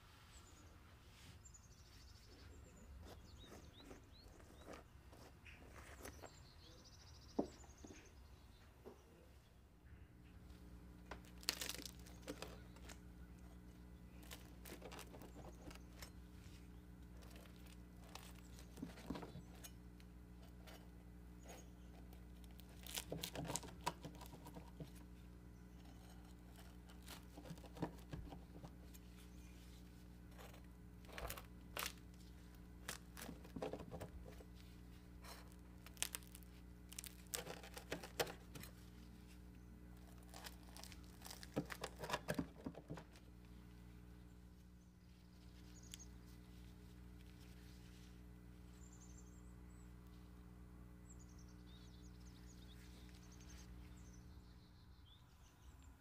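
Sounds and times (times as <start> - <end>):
faint steady hum: 0.0 - 56.0
knife crunching through crust: 11.2 - 13.0, 35.2 - 38.7, 40.0 - 42.4.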